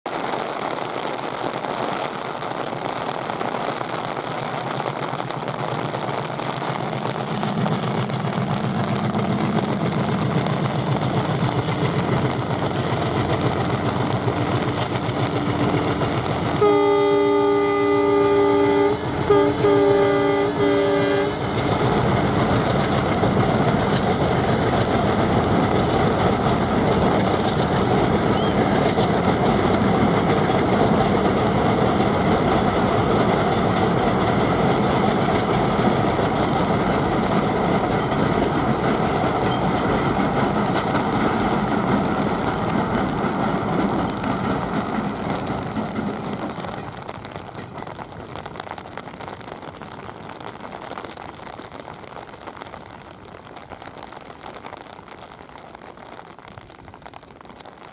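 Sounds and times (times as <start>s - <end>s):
train coaches rumbling over bridge: 0.1s - 50.6s
diesel locomotive engine running: 3.7s - 48.2s
locomotive horn: 16.6s - 21.5s.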